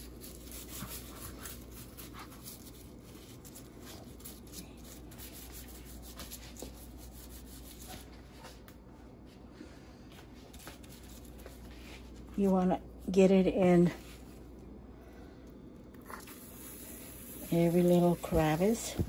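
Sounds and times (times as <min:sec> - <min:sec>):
gloved hands rubbing fish skin: 0:00.0 - 0:08.2, 0:10.5 - 0:12.3.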